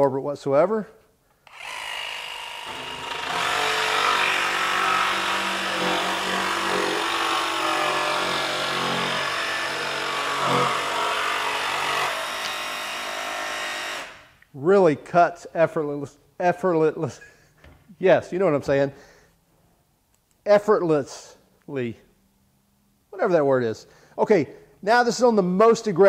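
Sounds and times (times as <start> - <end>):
jigsaw cutting plywood: 1.5 - 14.2.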